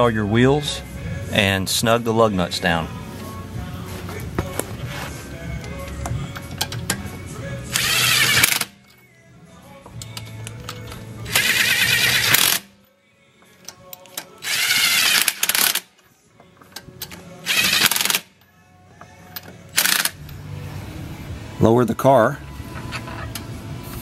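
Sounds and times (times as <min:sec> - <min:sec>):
impact wrench running lug nuts: 0:07.7 - 0:08.8, 0:10.1 - 0:12.7, 0:14.4 - 0:15.9, 0:17.0 - 0:18.3, 0:19.7 - 0:20.4.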